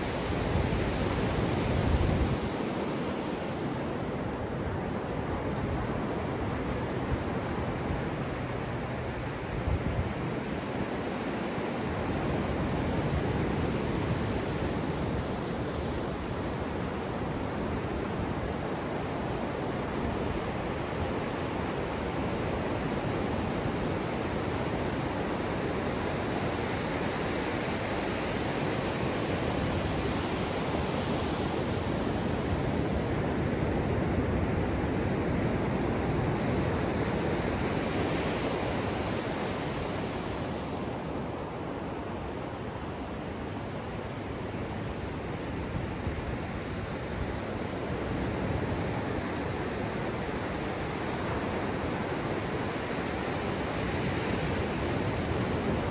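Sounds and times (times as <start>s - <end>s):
ocean surf breaking on sand: 0.0s - 55.9s.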